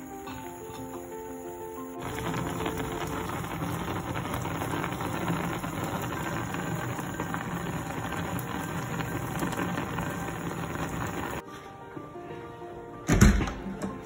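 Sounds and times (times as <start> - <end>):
curry sauce bubbling in a pan: 2.0 - 11.4.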